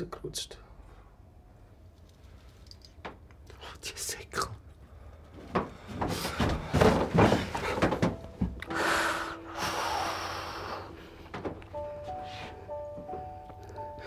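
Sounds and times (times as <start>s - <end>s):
clothing rustle and knocks: 5.3s - 8.6s, 11.2s - 12.2s
soft music: 7.3s - 14.0s.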